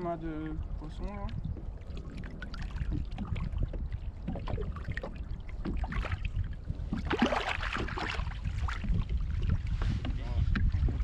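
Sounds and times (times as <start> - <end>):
water lapping against hull: 0.0 - 11.0
wind rumbling on microphone: 0.0 - 11.0
small water splashes: 0.4 - 9.8.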